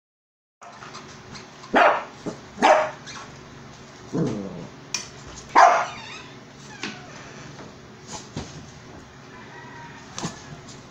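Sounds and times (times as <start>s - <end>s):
dog barking: 1.7s - 3.0s, 5.5s - 6.0s.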